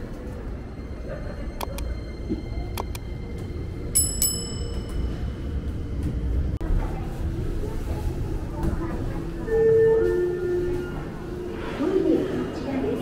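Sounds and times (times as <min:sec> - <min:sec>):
low street rumble: 0:00.0 - 0:13.0
small bell ringing: 0:04.0 - 0:05.3.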